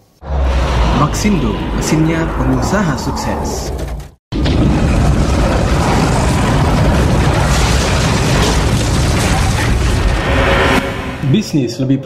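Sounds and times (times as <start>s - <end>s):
cinematic boom: 0.1s - 11.5s.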